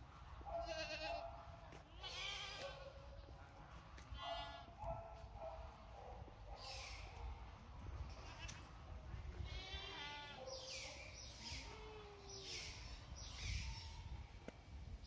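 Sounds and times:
animal bleating: 0:00.6 - 0:01.2, 0:01.9 - 0:02.8, 0:09.4 - 0:10.4.

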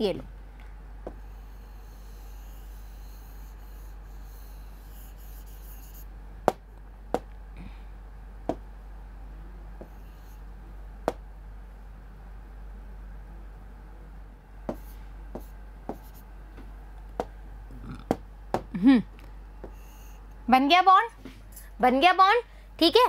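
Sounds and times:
pen scratching on paper: 0:01.1 - 0:06.0, 0:14.7 - 0:16.3.

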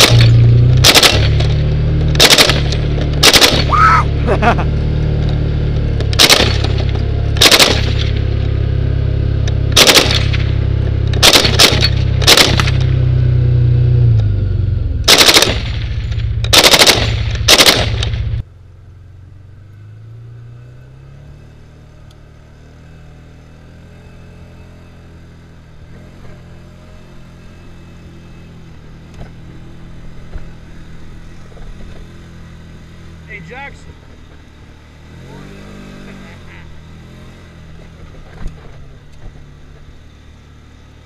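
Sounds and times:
machine gun automatic fire bursts: 0:00.0 - 0:01.6, 0:02.2 - 0:03.7, 0:06.2 - 0:08.1, 0:09.8 - 0:10.5, 0:11.2 - 0:12.8, 0:15.1 - 0:18.3
vehicle engine running: 0:00.0 - 0:41.0
steady low rumble: 0:09.4 - 0:19.7.

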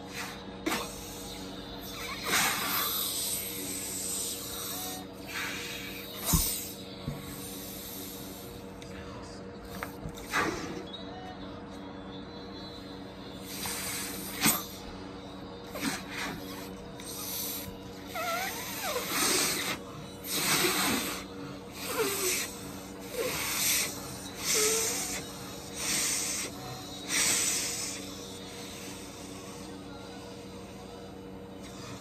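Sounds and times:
puffs of air into balloon: 0:10.2 - 0:10.9, 0:15.8 - 0:22.5
balloon squeaks: 0:18.1 - 0:19.7.

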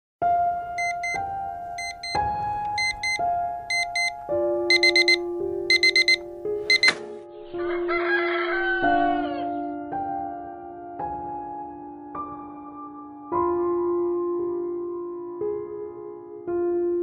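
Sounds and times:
soft background music: 0:00.2 - 0:17.0
alarm clock beeping: 0:00.8 - 0:01.2, 0:01.8 - 0:02.2, 0:02.8 - 0:07.0.

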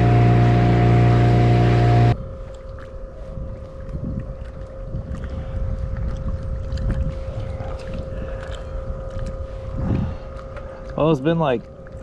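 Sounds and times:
steady hum: 0:00.0 - 0:06.0
wind noise on microphone: 0:00.0 - 0:11.0.

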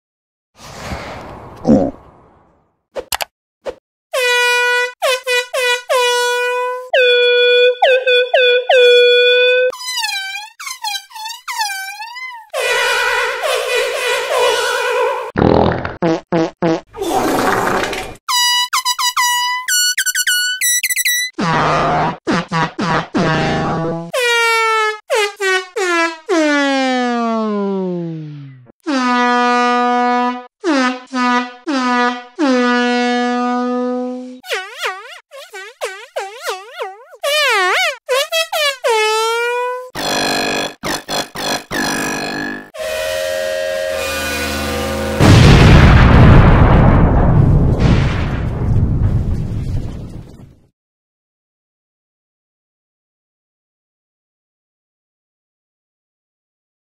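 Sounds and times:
air horn blasts: 0:04.2 - 0:09.7, 0:12.6 - 0:15.3, 0:42.3 - 0:45.4
slowed air horn blasts: 0:12.6 - 0:15.3, 0:41.8 - 0:45.3.

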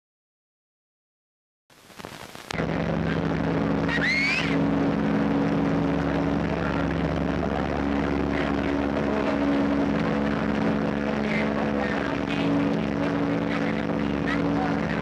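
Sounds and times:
crowd on pier: 0:02.6 - 0:15.0
ship whistle long deep blast: 0:03.8 - 0:04.9
brief rising whistle: 0:03.9 - 0:04.6.

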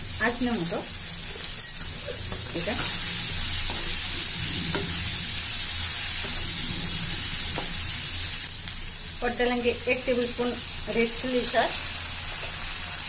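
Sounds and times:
vegetables sizzling in hot oil: 0:00.0 - 0:13.0
metal spatula scraping: 0:01.4 - 0:08.3.

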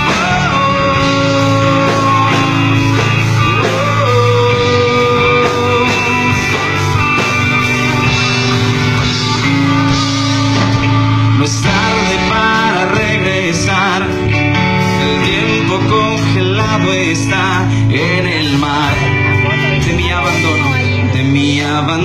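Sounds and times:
lead guitar bent notes: 0:00.0 - 0:22.0
live band playing: 0:00.0 - 0:22.0.

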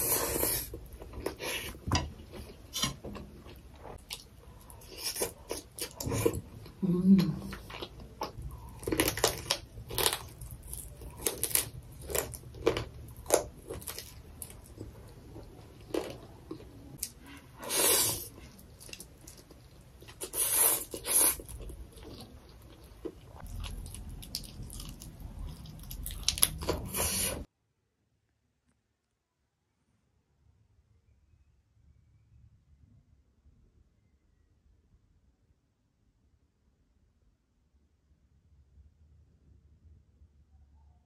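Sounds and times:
person chewing: 0:00.0 - 0:27.5.

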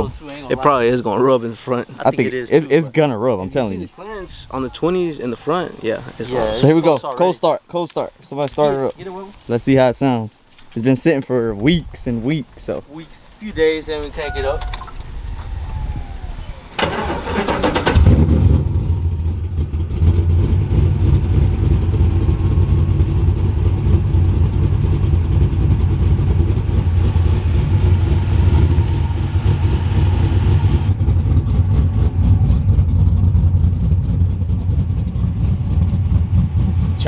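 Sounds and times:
starter cranking: 0:16.7 - 0:18.3
choppy engine idle: 0:18.7 - 0:37.0.

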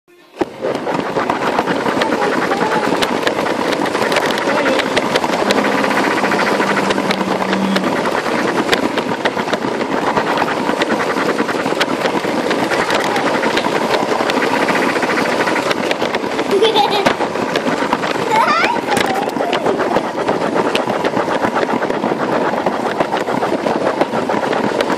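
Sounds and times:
wheels clicking on rails: 0:00.3 - 0:24.9
small electric motor whirring: 0:01.9 - 0:09.5.

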